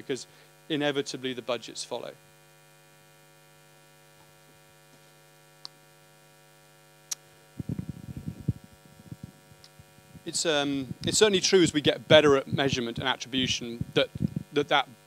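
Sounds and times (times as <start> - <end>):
faint mains hum: 0.0 - 15.0
muffled bumps and rustle: 7.6 - 14.6.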